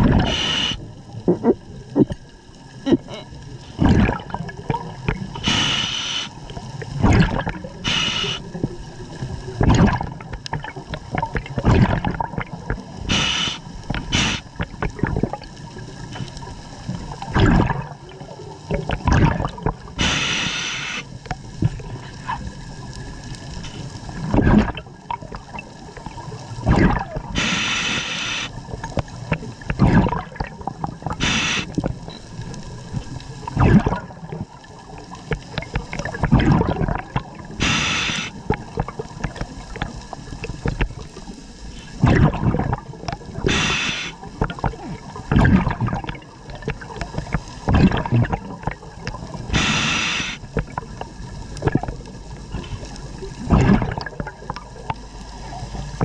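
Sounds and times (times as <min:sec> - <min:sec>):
gurgling exhaled bubbles: 0:00.0 - 0:56.0
regulator breathing hiss: 0:00.2 - 0:00.8, 0:05.4 - 0:06.4, 0:07.8 - 0:08.6, 0:13.1 - 0:14.5, 0:20.0 - 0:21.1, 0:27.4 - 0:28.6, 0:31.2 - 0:31.8, 0:37.6 - 0:38.4, 0:43.5 - 0:44.2, 0:49.5 - 0:50.5.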